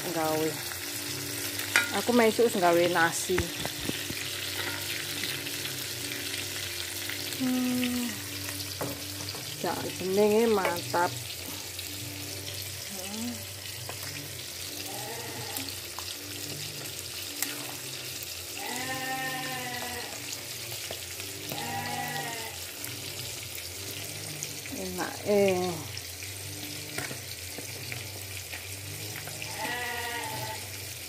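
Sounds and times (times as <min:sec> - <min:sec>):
fish sizzling in oil: 0:00.0 - 0:31.0
drawn-out calls: 0:29.4 - 0:30.6.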